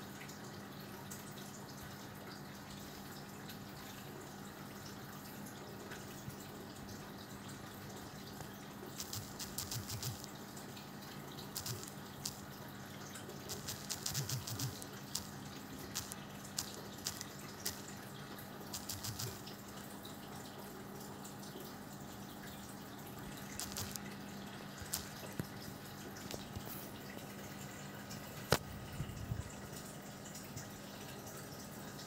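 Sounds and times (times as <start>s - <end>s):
typing taps on smartphone: 13.5s - 15.3s, 18.8s - 19.4s, 23.6s - 24.0s.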